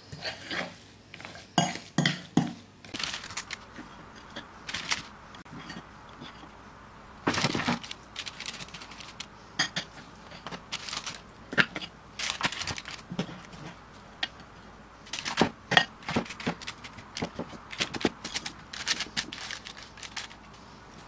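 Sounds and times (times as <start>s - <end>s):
paper rustling: 2.9s - 3.9s, 4.6s - 5.2s, 7.3s - 9.4s, 10.4s - 11.3s, 12.2s - 13.8s, 15.0s - 21.0s.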